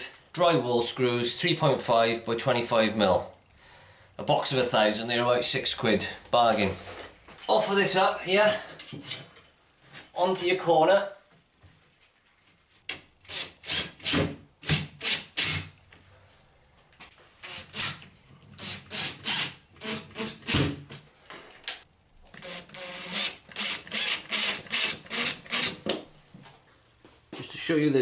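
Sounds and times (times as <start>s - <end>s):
cordless driver driving screws: 22.3s - 25.8s.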